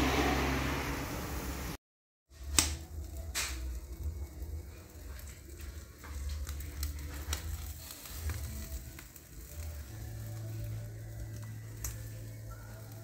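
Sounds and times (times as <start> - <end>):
crackling pops: 2.3 - 4.3, 5.2 - 9.8, 11.2 - 13.0
meat sizzling on a grill: 2.3 - 13.0.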